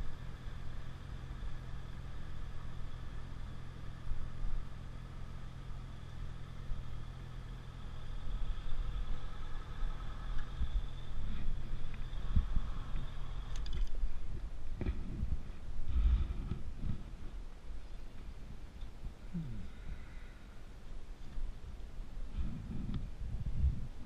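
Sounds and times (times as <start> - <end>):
motorcycle engine running: 0.0 - 18.0
wind rumble on microphone: 8.4 - 24.0.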